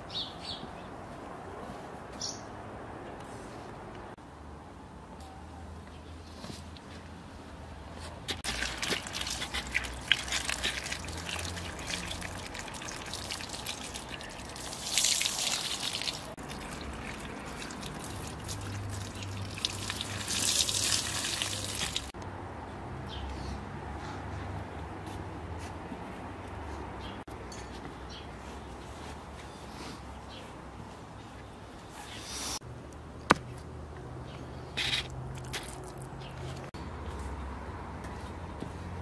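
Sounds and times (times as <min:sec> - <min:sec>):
water splashing over vegetables: 0:08.3 - 0:22.2, 0:35.3 - 0:36.1
water dripping: 0:08.4 - 0:22.2.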